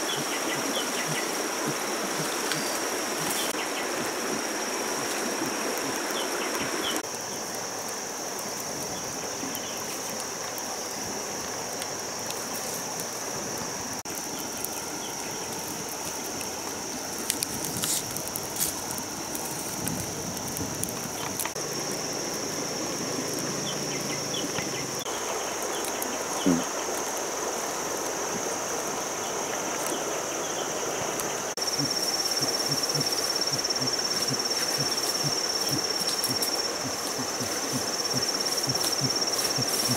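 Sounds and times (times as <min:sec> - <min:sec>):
stream rushing: 0:00.0 - 0:39.9
high-pitched insect drone: 0:31.4 - 0:39.9.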